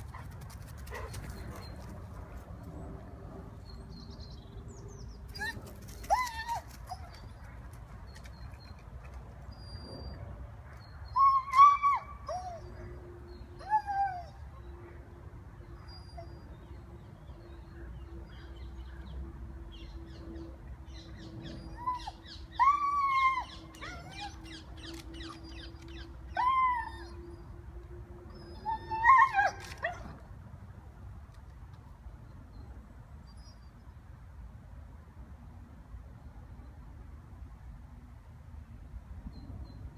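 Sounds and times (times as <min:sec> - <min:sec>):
dog whining and yelping: 0:05.3 - 0:07.2, 0:09.5 - 0:12.9, 0:21.4 - 0:27.5, 0:28.3 - 0:30.2.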